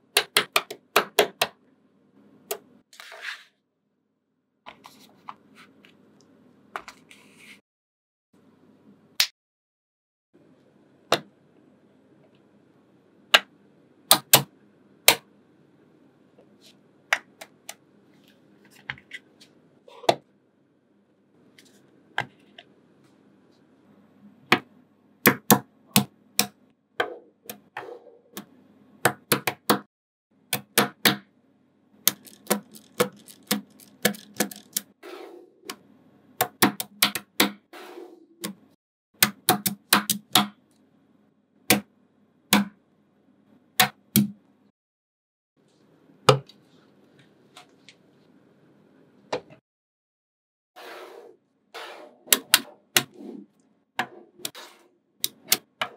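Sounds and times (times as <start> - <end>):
magnetic balls clicking together: 32.1 - 34.9.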